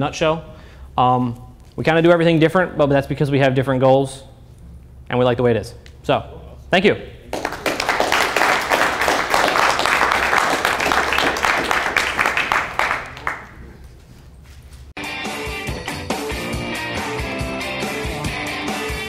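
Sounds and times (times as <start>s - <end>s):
audience applauding: 7.3s - 13.7s
music: 15.0s - 19.0s.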